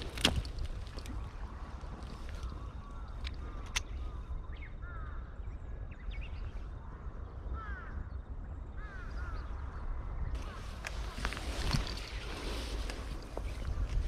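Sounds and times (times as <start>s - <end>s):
wind rumble on microphone: 0.0s - 14.0s
crow cawing: 7.5s - 8.0s.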